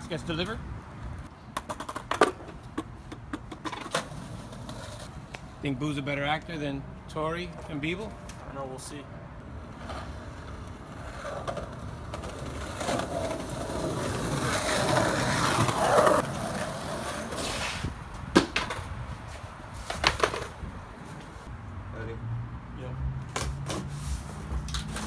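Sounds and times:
skateboard wheels rolling on concrete: 0.0s - 21.5s, 23.2s - 25.0s
skateboard clacks: 19.9s - 20.6s.

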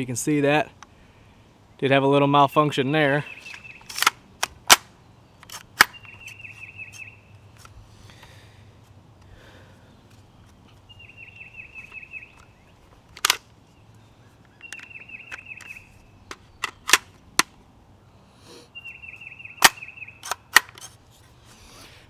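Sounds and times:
bird singing trilled phrase: 1.8s - 3.9s, 5.9s - 7.4s, 10.9s - 12.7s, 14.5s - 16.3s, 18.8s - 20.3s
gun action metallic clicks: 3.5s - 7.1s, 13.1s - 13.5s, 14.6s - 17.6s, 19.6s - 21.0s.

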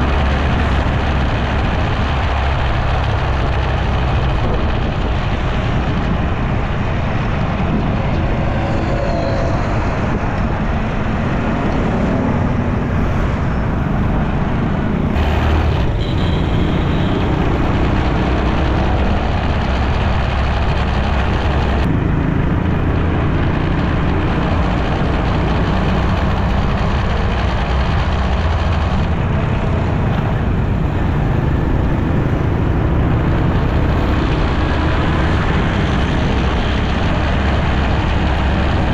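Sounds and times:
wind rumble on microphone: 0.0s - 16.6s
auto-rickshaw engine: 0.0s - 38.9s
car engines: 0.0s - 38.9s
motorbike engines: 0.0s - 38.9s.

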